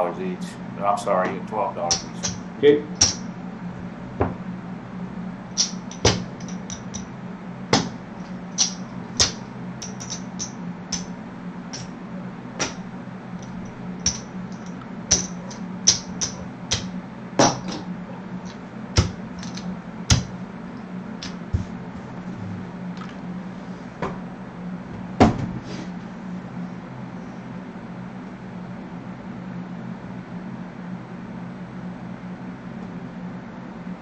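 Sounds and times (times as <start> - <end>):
steady low hum: 0.0 - 34.0
casino chips clicking: 5.6 - 7.1, 8.6 - 11.1, 13.4 - 16.9, 19.0 - 20.3.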